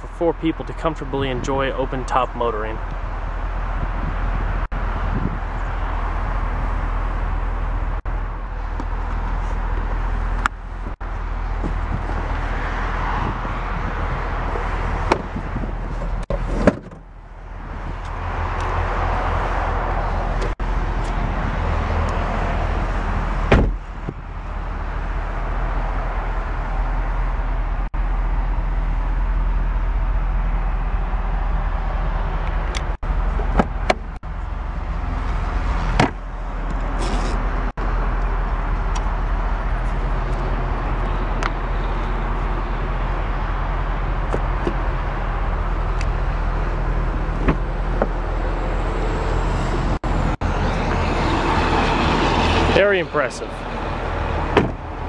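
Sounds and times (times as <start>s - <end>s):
car trim knocks and clicks: 36.0s - 36.8s, 47.4s - 48.2s, 54.5s - 54.8s.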